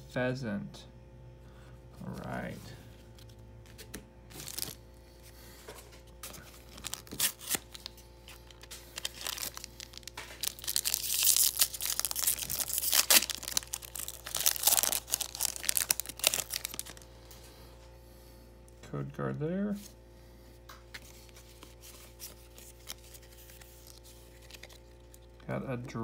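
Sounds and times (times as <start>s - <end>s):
foil wrapper crinkling and tearing: 4.3s - 4.8s, 6.2s - 17.4s, 21.0s - 25.4s.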